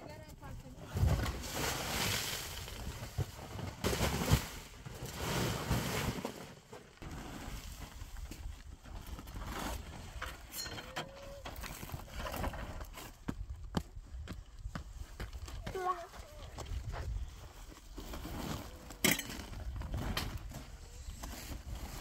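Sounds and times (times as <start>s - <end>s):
rug dragging over ground: 1.0s - 10.6s, 16.7s - 19.0s.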